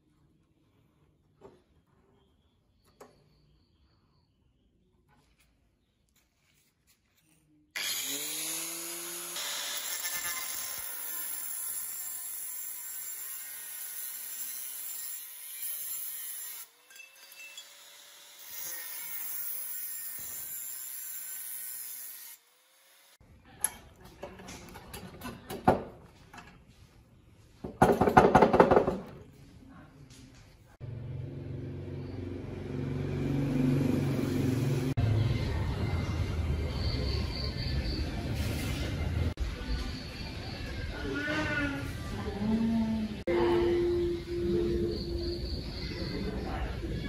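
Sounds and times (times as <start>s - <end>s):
angle grinder cutting steel tube: 7.8s - 23.2s.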